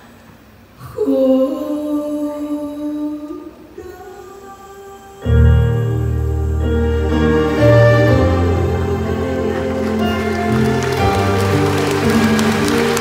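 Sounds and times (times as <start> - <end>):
band playing ballad with deep bass: 5.4 - 13.0.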